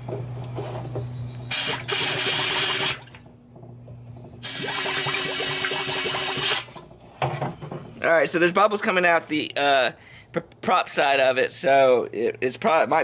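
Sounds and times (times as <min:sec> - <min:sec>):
air blow gun bubbling under water: 0:01.5 - 0:03.2, 0:04.4 - 0:06.8.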